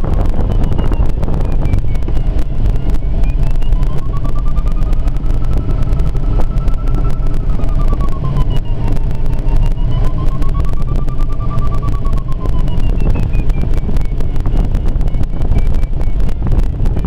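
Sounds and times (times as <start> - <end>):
thin tone: 0.0 - 17.0
wind rumble in cockpit: 0.0 - 17.0.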